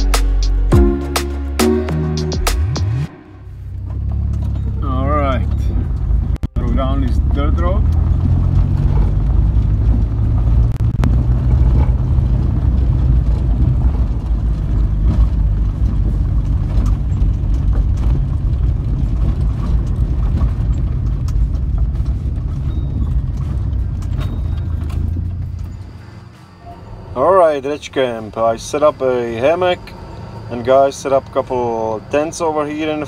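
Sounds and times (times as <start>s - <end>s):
engine and tyre rumble: 0.0s - 33.0s
knocks and rattles: 7.8s - 26.0s.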